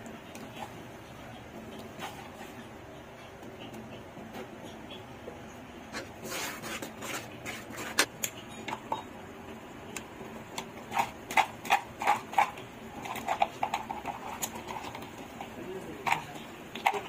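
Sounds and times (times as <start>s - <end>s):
spatula scraping and knocking pan: 10.7s - 17.0s.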